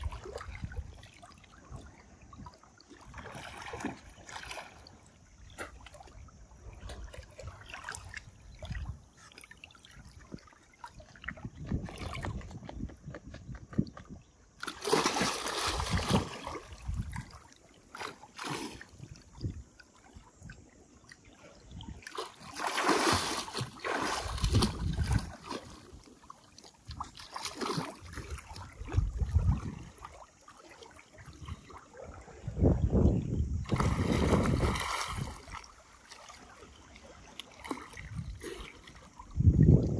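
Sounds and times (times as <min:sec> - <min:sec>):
water sloshing and splashing: 0:00.0 - 0:39.9.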